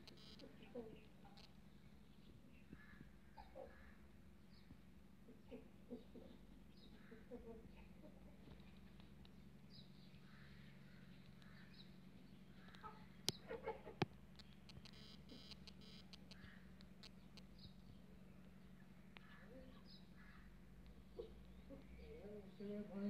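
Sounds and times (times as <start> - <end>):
sharp clicks: 0.0 - 0.4, 14.0 - 18.0
faint bird calls: 0.0 - 23.0
low steady hum: 0.0 - 23.0.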